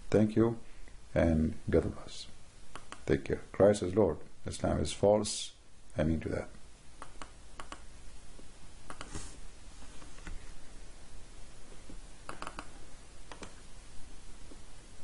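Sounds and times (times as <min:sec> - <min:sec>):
faint hiss: 0:00.0 - 0:15.0
computer mouse clicks: 0:02.7 - 0:03.1, 0:07.0 - 0:07.9, 0:08.9 - 0:09.2, 0:12.3 - 0:13.6.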